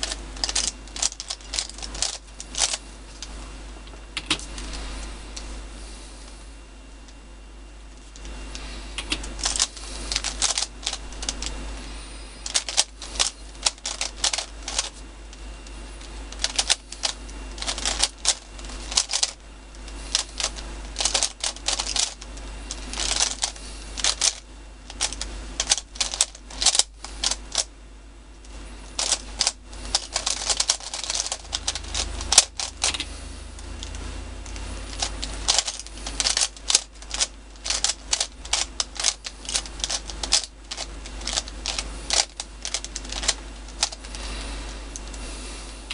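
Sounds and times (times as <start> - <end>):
plastic puzzle cube clicking: 34.9 - 44.0.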